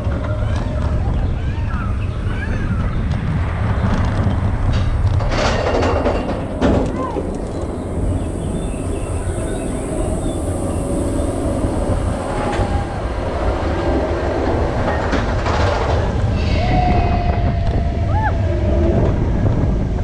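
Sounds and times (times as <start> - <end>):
clattering wheels: 0.0 - 8.8, 11.8 - 17.8
roller coaster train rumbling: 0.0 - 20.0.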